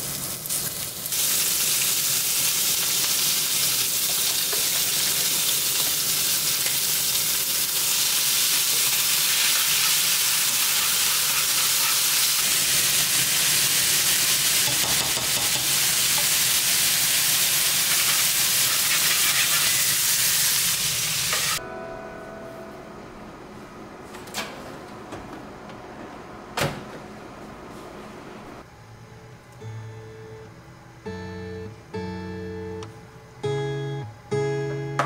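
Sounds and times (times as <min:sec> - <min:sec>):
meat sizzling in a frying pan: 0:00.0 - 0:21.6.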